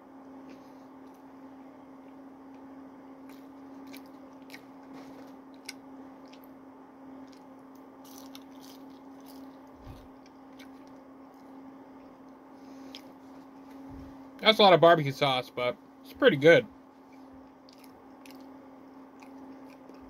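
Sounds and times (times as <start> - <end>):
low hum: 0.0 - 20.0
person chewing french fries: 3.2 - 6.6, 7.2 - 12.1, 12.8 - 13.2, 17.4 - 20.0.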